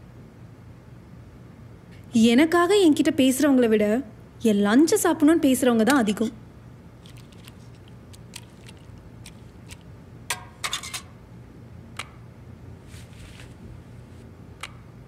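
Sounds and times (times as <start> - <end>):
low steady hum: 0.0 - 15.0
spoon and plastic containers clicking: 7.0 - 11.1
cloth rustle: 12.8 - 14.3.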